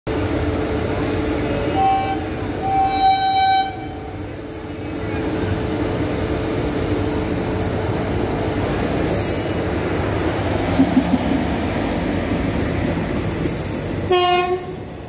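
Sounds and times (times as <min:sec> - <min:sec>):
train rumbling: 0:00.1 - 0:15.0
train horn blasts: 0:01.6 - 0:04.1, 0:14.1 - 0:14.8.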